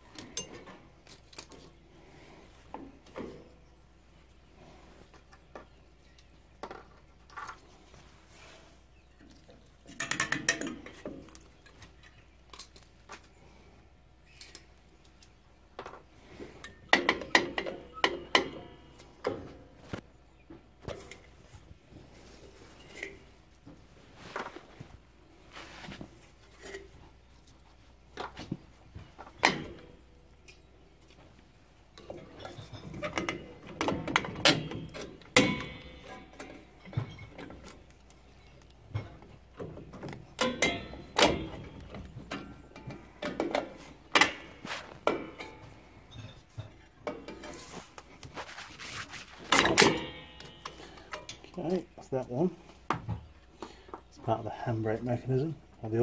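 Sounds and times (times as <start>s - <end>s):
metal clicks and scraping: 9.4s - 13.3s, 32.0s - 51.6s.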